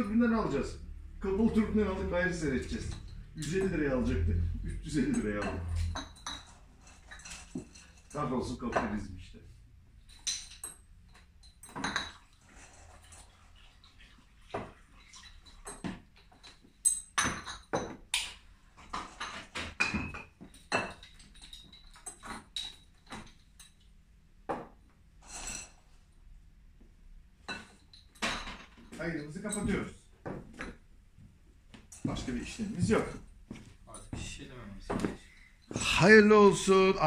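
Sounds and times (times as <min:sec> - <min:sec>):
glass bottles and tools clinking: 0:02.0 - 0:09.0, 0:10.0 - 0:13.2, 0:14.5 - 0:23.9, 0:24.5 - 0:25.9, 0:27.4 - 0:30.8, 0:34.9 - 0:36.4.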